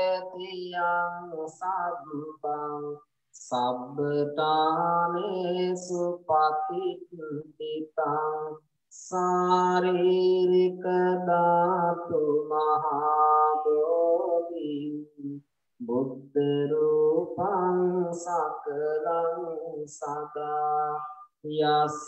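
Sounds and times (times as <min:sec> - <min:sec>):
person chanting melodically: 0:00.0 - 0:22.0.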